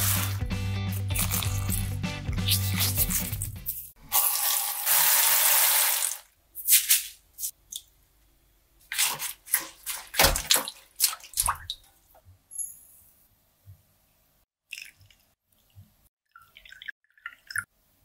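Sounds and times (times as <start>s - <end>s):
water running into steel bowl: 4.1s - 6.3s
water splashing and sloshing: 8.8s - 12.2s.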